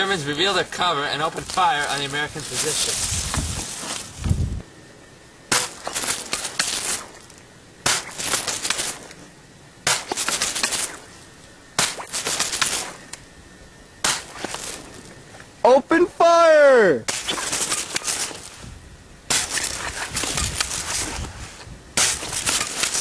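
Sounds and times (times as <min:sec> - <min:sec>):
gunfire volleys: 0:11.8 - 0:13.0.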